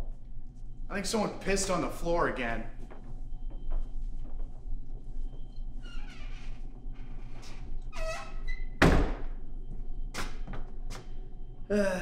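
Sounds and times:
door hinges creaking: 0:05.8 - 0:09.2.

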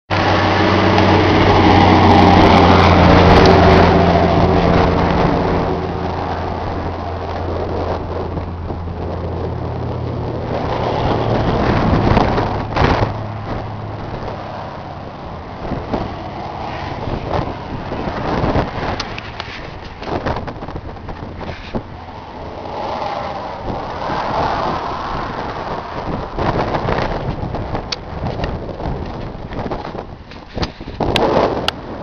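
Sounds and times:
tractor diesel engine running: 0:00.1 - 0:31.2.

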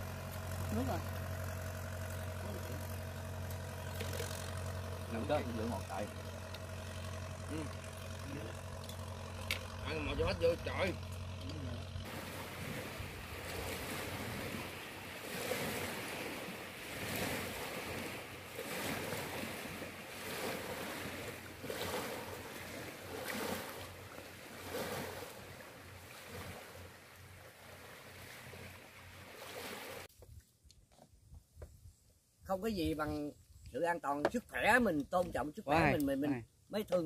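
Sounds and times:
river waves washing against bank: 0:12.0 - 0:30.1.

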